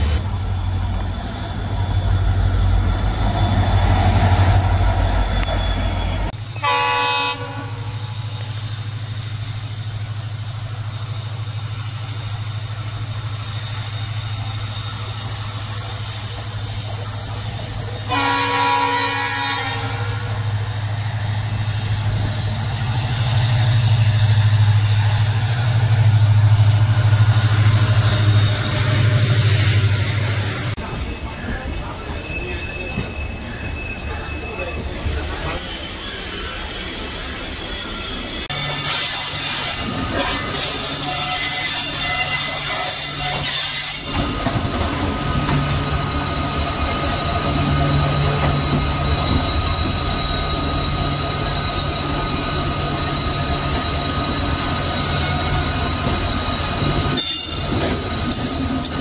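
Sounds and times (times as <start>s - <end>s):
locomotive engine drone: 0.0s - 41.1s, 44.0s - 59.0s
train horn blasts: 6.6s - 8.2s, 18.0s - 20.6s, 40.2s - 44.1s.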